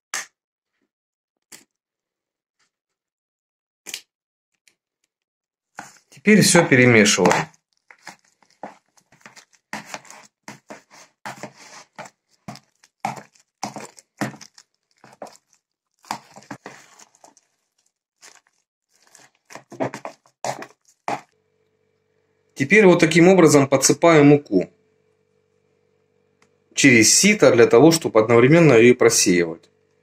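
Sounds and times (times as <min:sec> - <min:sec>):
spoon scraping and mashing food: 0:05.8 - 0:21.4.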